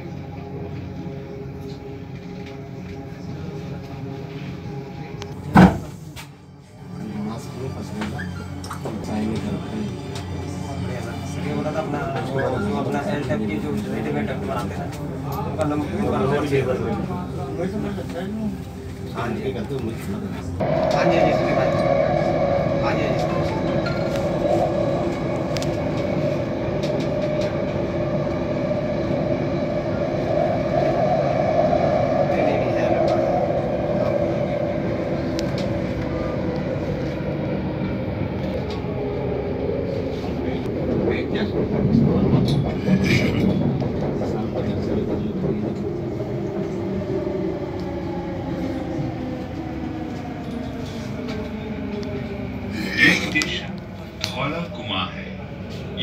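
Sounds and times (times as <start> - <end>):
electric train running: 20.6 - 55.0.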